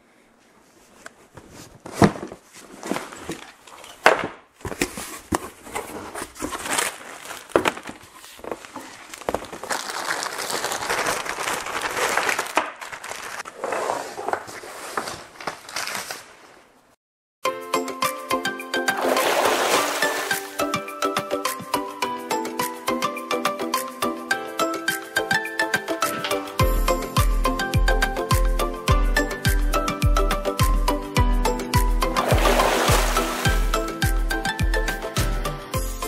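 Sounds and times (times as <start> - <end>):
packing material rustling: 0.9 - 16.9
cardboard box knocks and scrapes: 1.4 - 3.5, 4.6 - 6.9.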